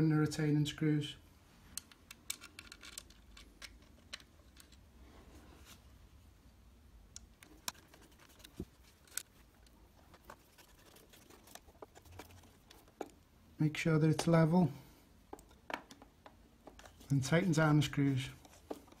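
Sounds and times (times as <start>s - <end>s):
metal clicks and taps: 1.8s - 4.8s.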